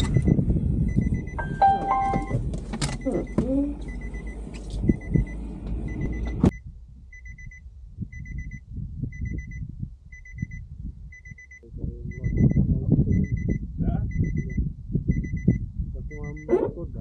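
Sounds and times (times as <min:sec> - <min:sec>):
car door warning beeps: 0:00.0 - 0:06.6, 0:12.2 - 0:16.7.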